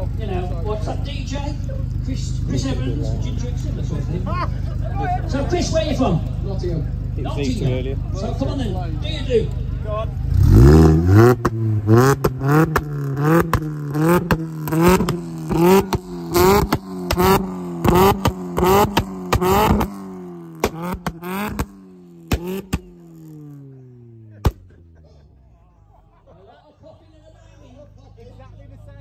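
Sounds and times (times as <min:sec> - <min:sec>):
car engine revving: 0:00.0 - 0:25.4
exhaust pops and cracks: 0:11.3 - 0:23.5, 0:24.3 - 0:24.8.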